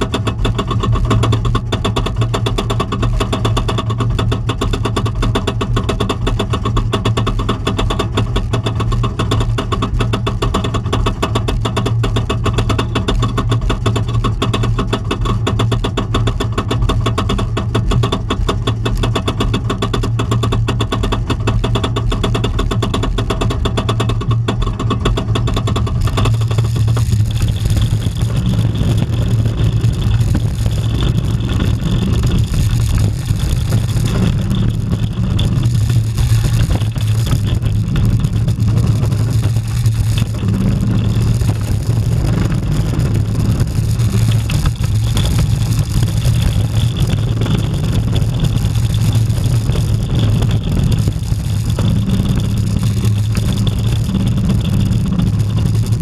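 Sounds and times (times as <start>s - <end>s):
roller coaster lift clatter: 0.0s - 56.0s
roller coaster wheels rumbling: 0.0s - 56.0s
wind rushing on microphone: 26.0s - 56.0s.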